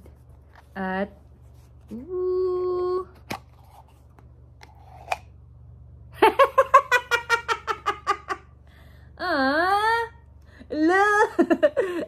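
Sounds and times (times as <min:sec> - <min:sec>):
woman laughing: 0:06.2 - 0:08.5, 0:10.7 - 0:12.0.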